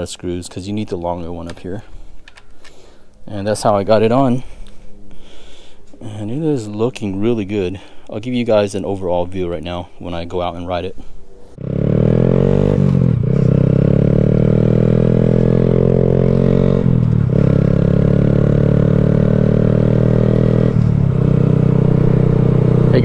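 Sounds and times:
motorcycle engine running: 0:11.6 - 0:23.0.

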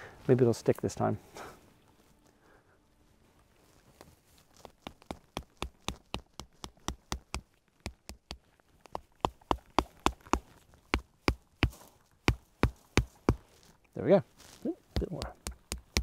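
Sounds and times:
hammer knocking wooden sticks: 0:04.6 - 0:13.4, 0:14.9 - 0:16.0.

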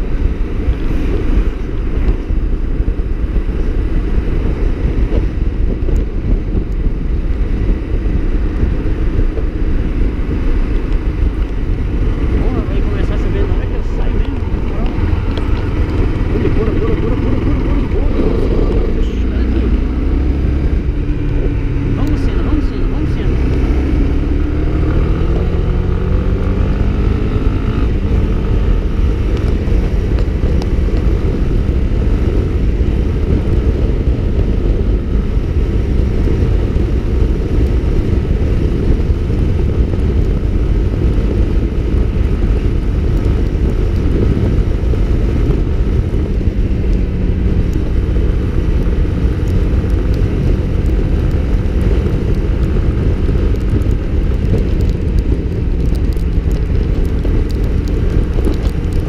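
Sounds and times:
motorcycle engine running: 0:00.0 - 0:59.0
wind rush on microphone: 0:00.0 - 0:59.0.

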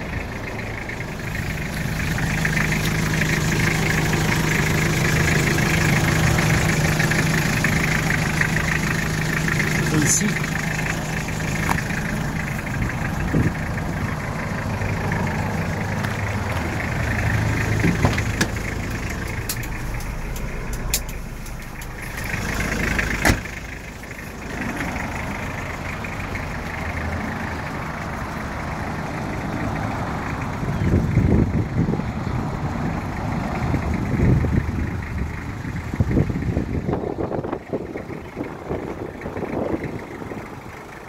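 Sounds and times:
diesel engine idling: 0:00.0 - 0:41.0
sharp clicks: 0:18.1 - 0:22.3.

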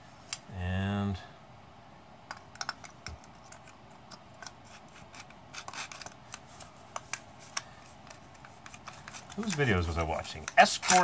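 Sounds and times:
metal parts clicking and scraping: 0:02.3 - 0:11.0.

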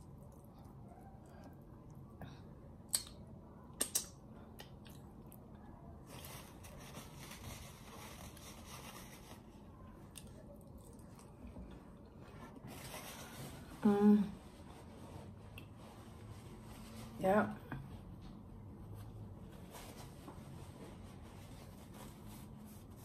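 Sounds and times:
quiet chewing of ribs: 0:00.0 - 0:03.2, 0:04.4 - 0:06.4, 0:09.6 - 0:12.8, 0:15.4 - 0:15.8.

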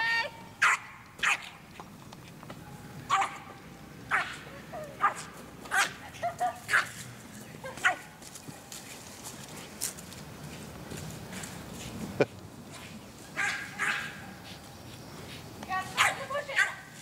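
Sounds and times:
dog barking: 0:00.6 - 0:01.5, 0:03.1 - 0:03.4, 0:04.1 - 0:04.4, 0:05.0 - 0:06.0, 0:13.4 - 0:14.5, 0:15.9 - 0:16.9.

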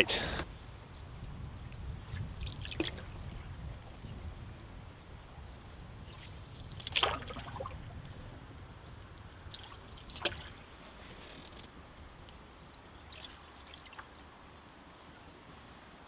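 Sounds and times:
water splashing against canoe: 0:02.1 - 0:03.5, 0:06.1 - 0:08.0, 0:09.5 - 0:11.7.

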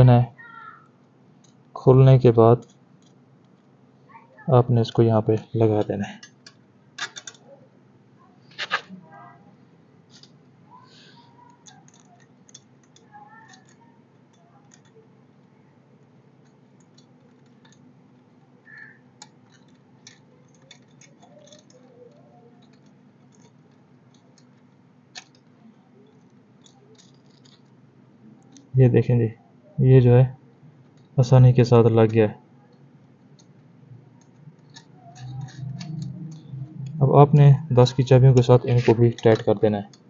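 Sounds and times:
metallic clicks and taps: 0:06.2 - 0:07.5, 0:11.4 - 0:27.8, 0:32.7 - 0:40.0
low hum: 0:22.2 - 0:40.0.

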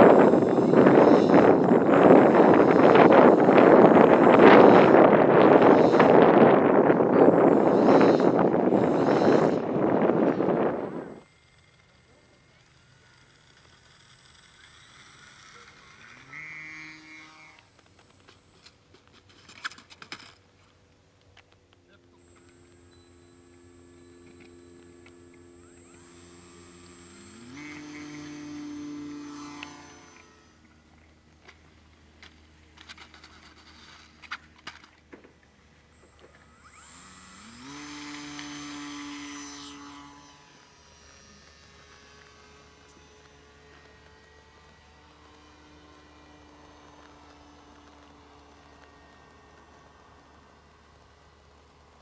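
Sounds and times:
electric motor and propeller whine: 0:00.0 - 0:52.0.

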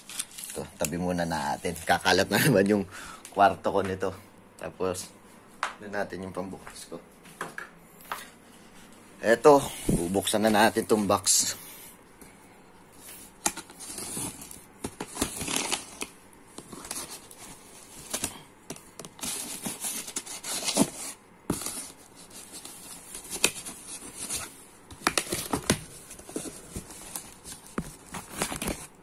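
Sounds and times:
cardboard scraping and crackling: 0:13.0 - 0:18.3, 0:19.0 - 0:29.0.

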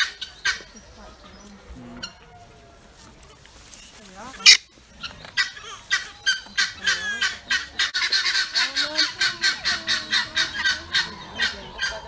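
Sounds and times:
guineafowl cackling: 0:00.0 - 0:01.1, 0:01.9 - 0:02.6, 0:04.2 - 0:12.0.

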